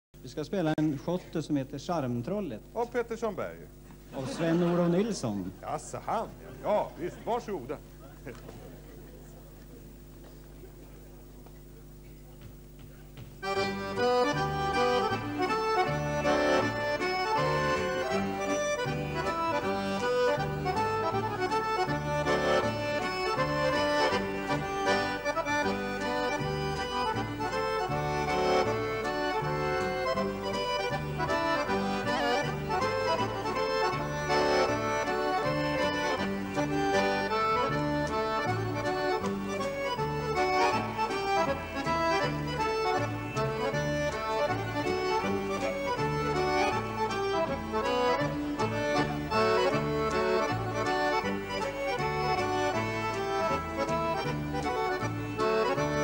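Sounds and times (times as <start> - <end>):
accordions playing lively tune: 1.0 - 10.9, 11.6 - 56.0
acoustic guitar: 7.4 - 56.0
double bass: 13.4 - 56.0.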